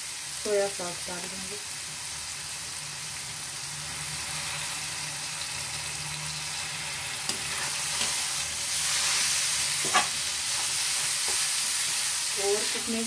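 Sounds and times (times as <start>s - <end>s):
vegetables sizzling in a pan: 0.0s - 13.0s
metal spatula stirring: 7.3s - 12.1s.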